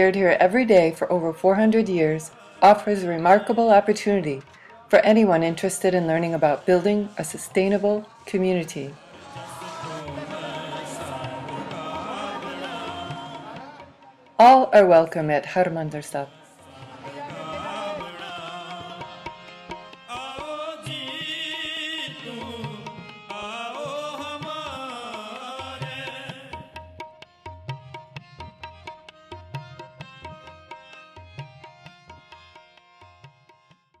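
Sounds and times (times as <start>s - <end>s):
harmonium: 0.0s - 34.0s
tabla: 0.0s - 34.0s
man singing a hymn: 9.0s - 14.0s, 16.7s - 19.4s, 20.1s - 26.6s.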